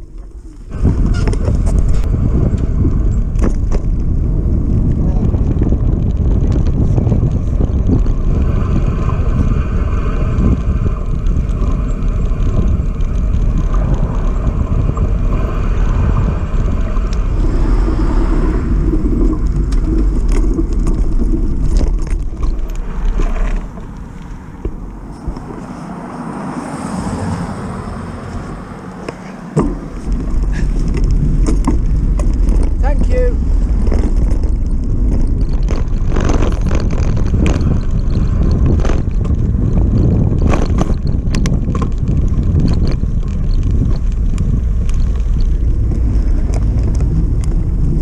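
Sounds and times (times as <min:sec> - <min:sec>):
bicycle tyre rumble: 0:00.0 - 0:48.0
wind buffeting microphone: 0:00.0 - 0:48.0
rattles: 0:16.5 - 0:25.7, 0:29.0 - 0:48.0.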